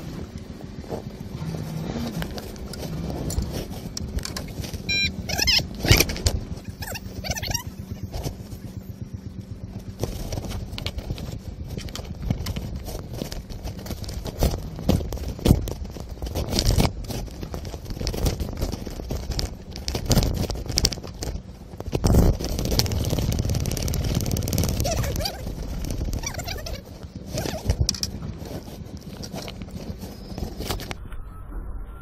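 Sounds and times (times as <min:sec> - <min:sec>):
steady rushing noise: 0:00.0 - 0:31.0
rough rumbling noise: 0:00.0 - 0:32.0
fishing rod knocks and clatters: 0:27.6 - 0:29.8.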